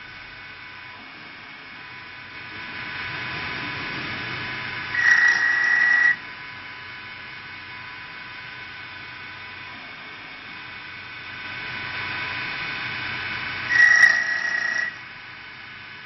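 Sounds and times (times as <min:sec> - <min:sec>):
loud high-pitched steady tone: 0:04.4 - 0:16.0
wood lathe turning and drilling: 0:04.9 - 0:06.2, 0:13.6 - 0:15.0.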